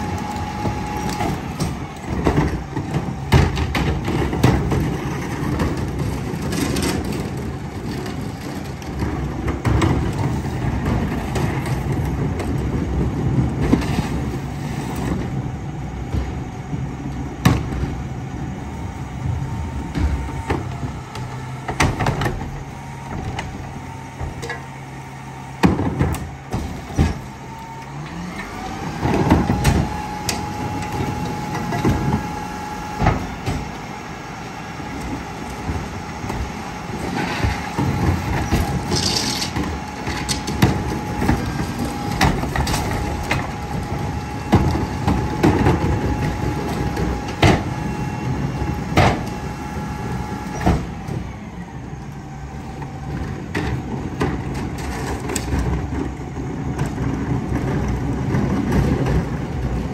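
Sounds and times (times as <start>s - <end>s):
diesel engine idling and revving: 0.0s - 59.9s
hydraulic packer whine: 0.0s - 59.9s.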